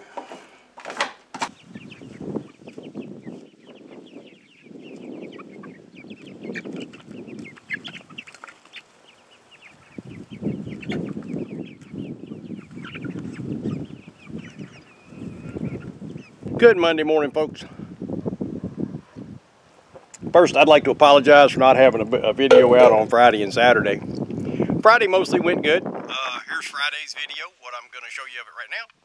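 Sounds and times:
hens clucking: 0:01.4 - 0:16.6, 0:21.7 - 0:24.4.

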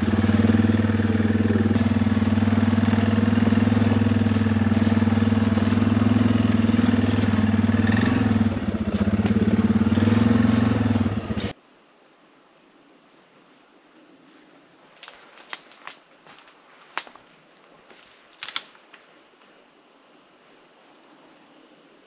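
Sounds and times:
quad engine running: 0:00.0 - 0:11.6.

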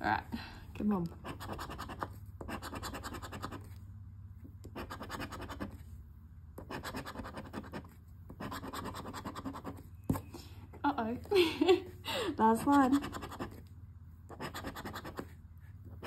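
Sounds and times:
scratching lottery ticket: 0:01.1 - 0:03.8, 0:04.7 - 0:05.8, 0:06.6 - 0:10.4, 0:12.5 - 0:13.7, 0:14.3 - 0:16.0.

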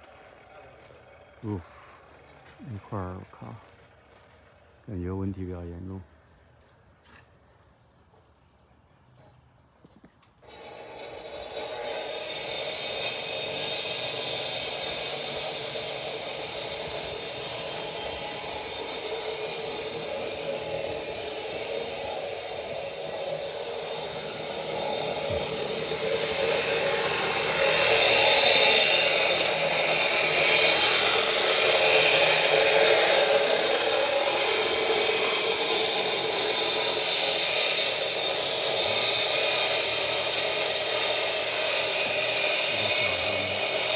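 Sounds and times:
steady machine noise: 0:10.4 - 0:43.9.

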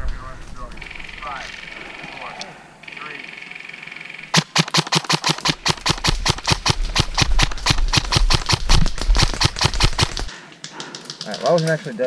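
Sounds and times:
airsoft rifle rapid shots: 0:04.3 - 0:11.7.

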